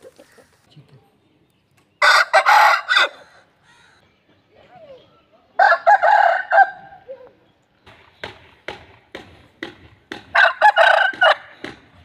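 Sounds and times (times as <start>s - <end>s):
rooster crowing: 5.6s - 6.8s.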